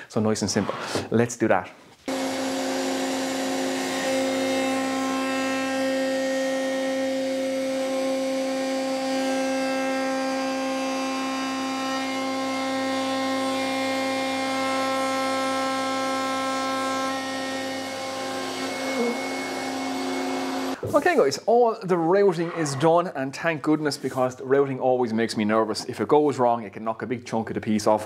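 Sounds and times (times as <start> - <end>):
dust extractor running: 2.1 - 20.8
router cutting wood: 2.1 - 20.8.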